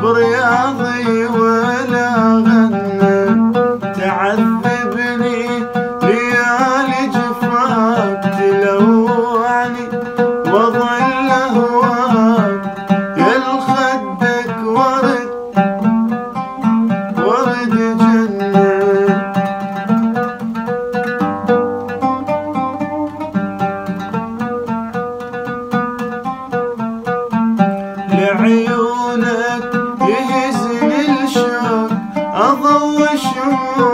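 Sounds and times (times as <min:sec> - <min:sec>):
man singing: 0:00.0 - 0:20.3, 0:28.0 - 0:33.9
oud plucked in quick notes: 0:00.0 - 0:33.9.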